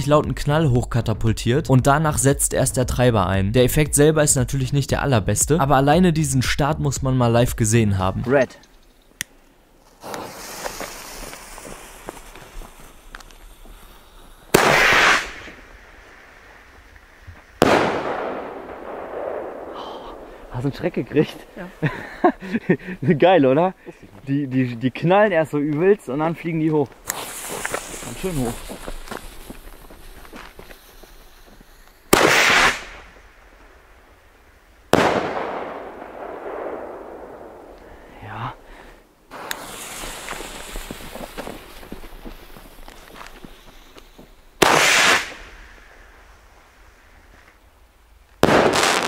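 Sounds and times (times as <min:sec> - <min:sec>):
firework rocket launch bang: 0:10.0 - 0:13.1, 0:14.5 - 0:16.8, 0:17.5 - 0:20.6, 0:27.0 - 0:29.5, 0:32.1 - 0:33.6, 0:39.3 - 0:41.6, 0:44.6 - 0:46.1, 0:48.4 - 0:49.0
firework burst bang: 0:14.5 - 0:15.7, 0:17.6 - 0:20.7, 0:32.1 - 0:33.1, 0:34.9 - 0:37.8, 0:44.6 - 0:45.6, 0:48.4 - 0:49.0.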